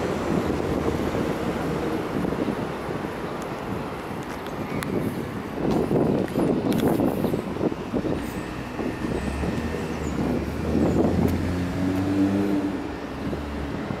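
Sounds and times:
low vehicle hum: 0.0s - 14.0s
wind rumbling on microphone: 0.0s - 14.0s.

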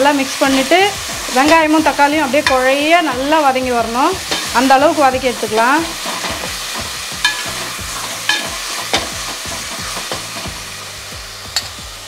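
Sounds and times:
food sizzling in hot oil: 0.0s - 12.0s
metal spatula stirring and scraping: 0.2s - 10.6s.

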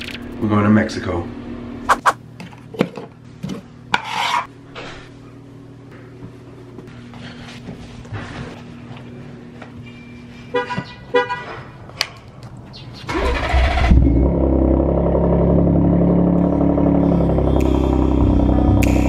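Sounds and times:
car horn chirps: 10.5s - 11.6s
engine starting and idling: 13.1s - 19.0s.

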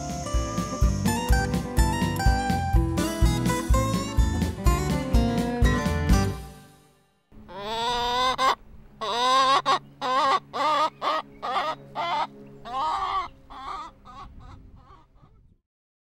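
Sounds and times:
chicken calling: 7.4s - 15.4s.

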